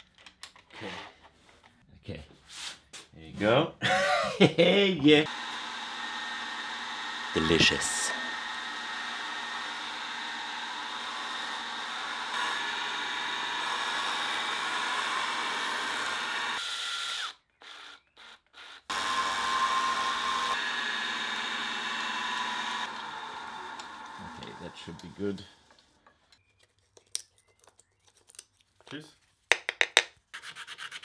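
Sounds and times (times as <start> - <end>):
milling machine whine: 5.3 - 16.6, 18.9 - 25.4.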